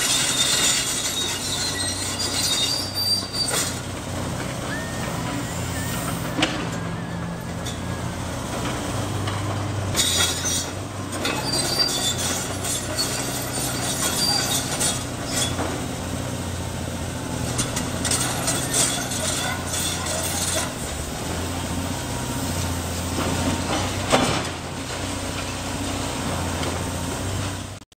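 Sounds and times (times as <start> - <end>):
metallic squeals and scraping: 0.0 - 15.8, 17.5 - 21.0
excavator diesel engine running: 0.0 - 27.9.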